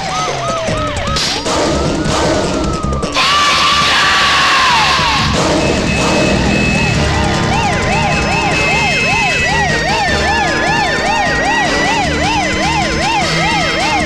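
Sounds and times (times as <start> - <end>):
police siren yelp: 0.0 - 14.0
slower siren tone: 5.3 - 14.0.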